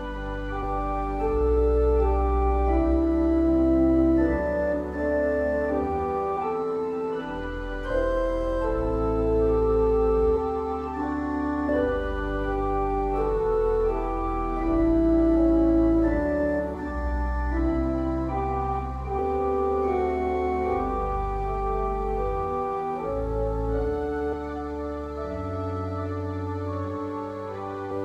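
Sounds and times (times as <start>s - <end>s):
organ playing held chords: 0.0s - 28.0s.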